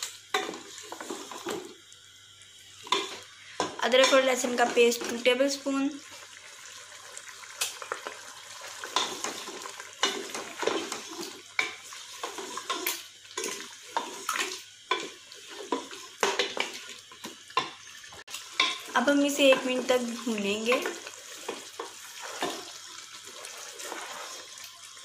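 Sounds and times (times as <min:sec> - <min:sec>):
faint frying sizzle: 0:00.0 - 0:25.0
wooden spoon scraping metal pot: 0:08.8 - 0:16.8, 0:18.6 - 0:24.5.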